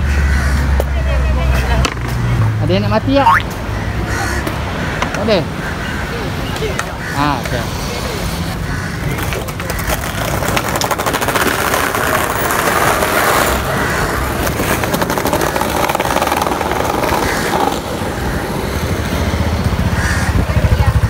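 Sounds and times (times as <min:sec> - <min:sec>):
street traffic: 0:00.0 - 0:21.0
skateboard wheels rolling: 0:06.6 - 0:21.0.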